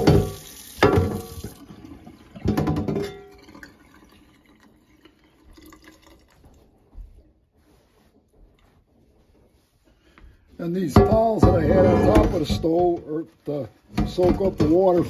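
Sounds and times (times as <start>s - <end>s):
tap water running into sink: 0.0s - 6.6s
faint handling noises: 5.1s - 15.0s.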